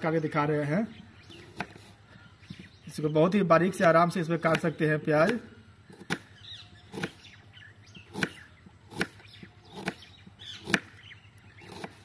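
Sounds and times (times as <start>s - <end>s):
knife slicing onion: 8.1s - 10.0s, 11.6s - 12.0s.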